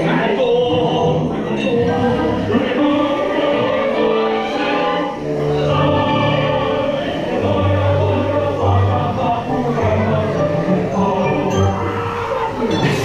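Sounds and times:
choir singing long held notes: 0.0 - 13.0
orchestral backing with bass line: 0.0 - 13.0.

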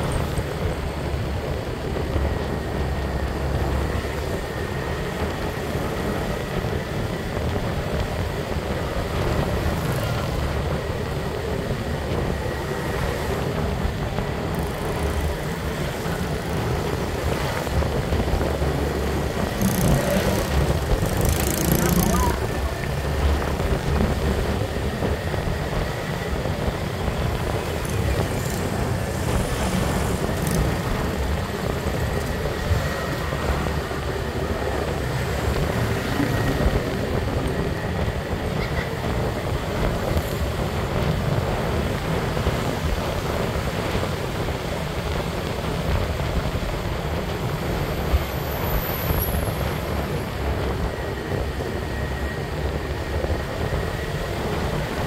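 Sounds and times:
motorbike engine: 0.0 - 43.0
road noise: 0.0 - 55.0
wind buffeting microphone: 0.0 - 55.0.

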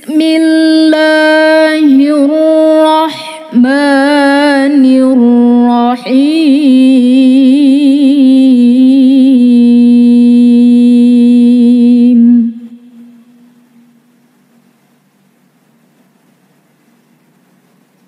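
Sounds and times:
woman reciting melodically: 0.0 - 13.9.

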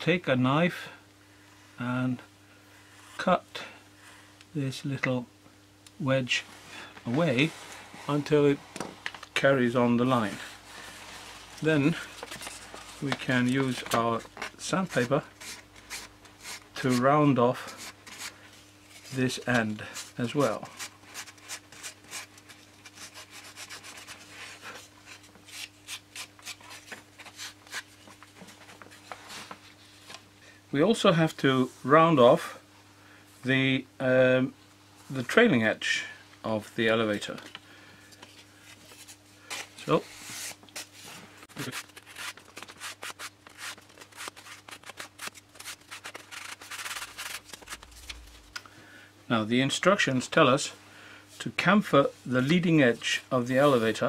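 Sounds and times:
faint steady hum: 0.0 - 54.0
sandpaper rubbing wood: 41.6 - 48.3
sandpaper rubbing on wood: 45.2 - 47.9.

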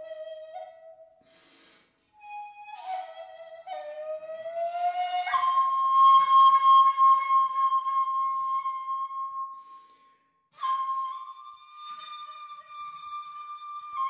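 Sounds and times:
bamboo flute long notes: 0.0 - 10.0, 10.6 - 14.0
breath: 1.2 - 2.0, 9.6 - 10.5.

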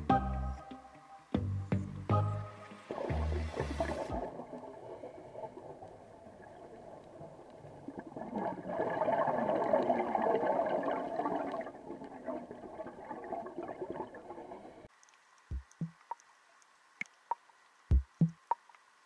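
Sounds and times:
diver's exhaled bubbles underwater: 3.0 - 14.8.

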